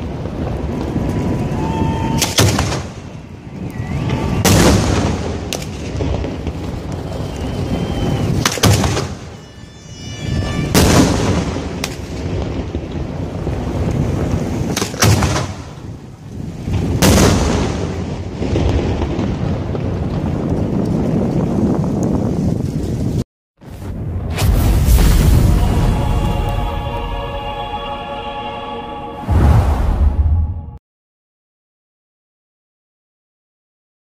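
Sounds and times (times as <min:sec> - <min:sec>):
fireworks bangs: 0:00.0 - 0:22.3, 0:23.6 - 0:27.8
steady low noise: 0:24.5 - 0:30.8.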